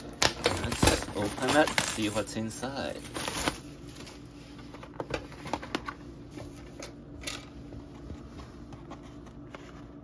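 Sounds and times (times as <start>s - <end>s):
package rustle: 0.2s - 4.2s
food package crinkling: 0.4s - 3.7s.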